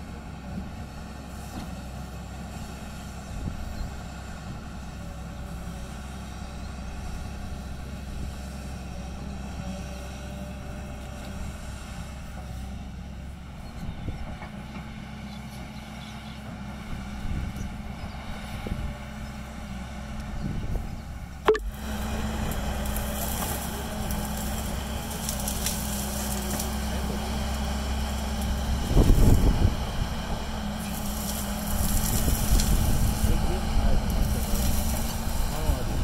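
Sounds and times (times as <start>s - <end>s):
excavator diesel engine running: 0.0s - 36.0s.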